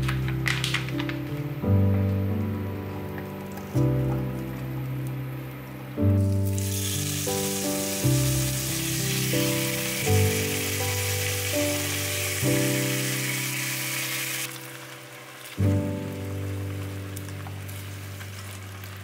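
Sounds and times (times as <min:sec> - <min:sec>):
background music: 0:00.0 - 0:19.0
chicken sizzling in a pot: 0:06.3 - 0:19.0.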